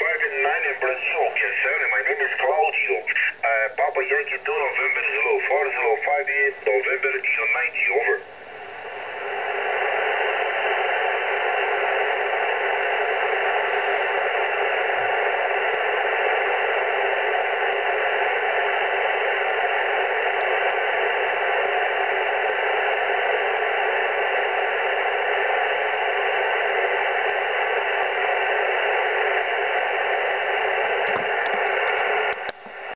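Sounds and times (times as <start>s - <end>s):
radio static hiss: 0.0s - 32.9s
clicks: 31.0s - 32.8s.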